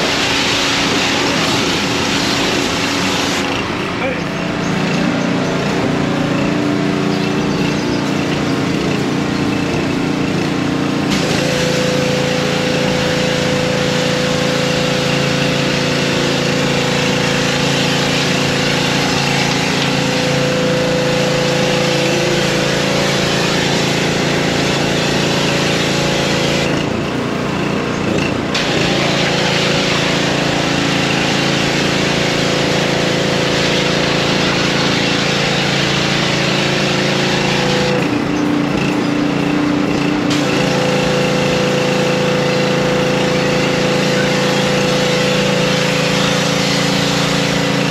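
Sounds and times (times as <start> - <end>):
pressure washer spray hiss: 0.0 - 3.5, 11.0 - 26.6, 28.5 - 37.9, 42.9 - 47.9
small engine running: 0.0 - 47.9.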